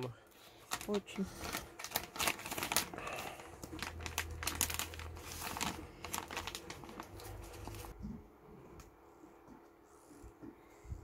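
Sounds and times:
plastic bag crinkling: 0.4 - 7.9.

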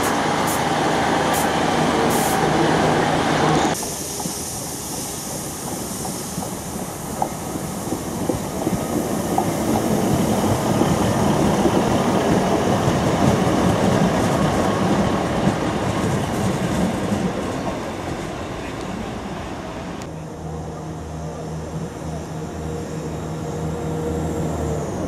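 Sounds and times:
diesel train passing: 0.0 - 25.0
wheels clickety-clack on rails: 3.5 - 19.1.

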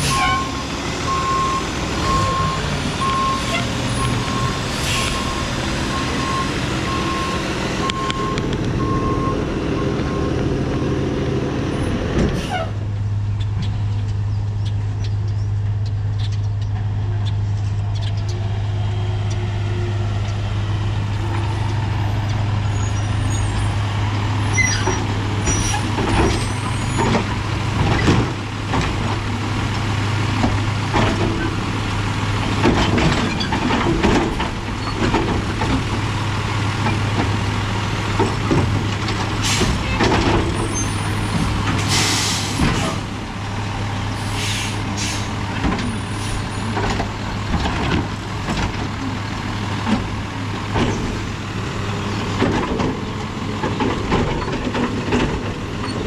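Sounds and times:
truck engine humming: 0.0 - 56.0
metal clanks and bangs: 38.1 - 43.1
air brake hisses: 41.9 - 43.0, 44.2 - 45.4.

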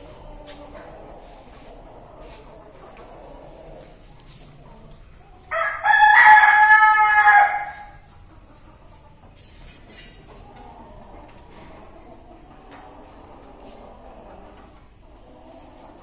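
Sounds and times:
rooster crowing: 5.5 - 8.0.

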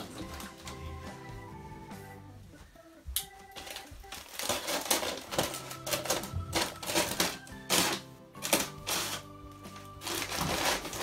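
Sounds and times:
background music with held notes: 0.0 - 11.0
packing paper crackling and tearing: 3.6 - 11.0.

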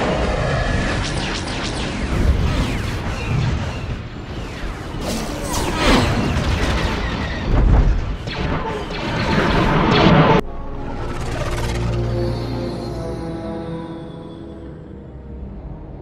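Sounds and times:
orchestral score: 10.0 - 16.0.

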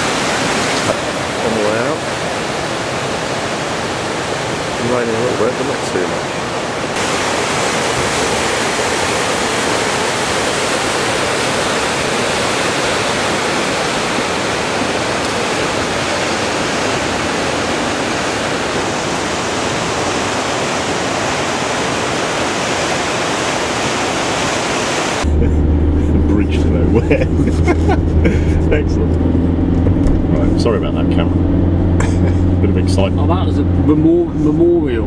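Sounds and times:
river rushing through rapids: 0.0 - 25.3.

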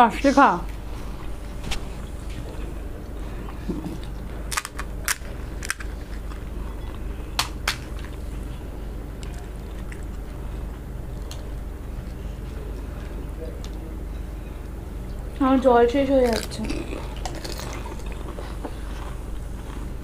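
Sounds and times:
fried shells cracking: 4.5 - 6.5.

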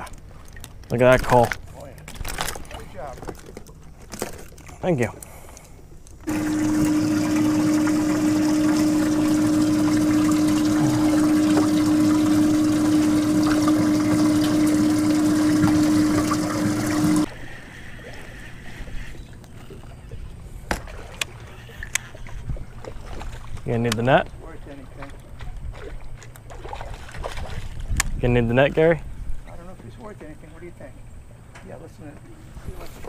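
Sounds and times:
pump motor hum: 5.2 - 27.6
water splashing: 6.2 - 28.0.

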